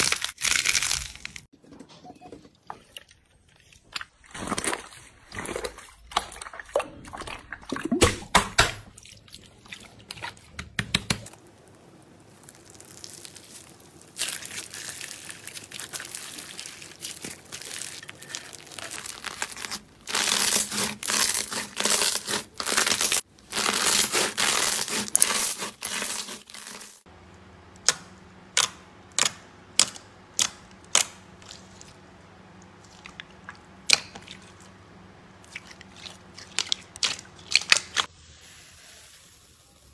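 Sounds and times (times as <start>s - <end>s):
slime crackling and tearing: 0.0s - 1.4s, 12.3s - 27.0s.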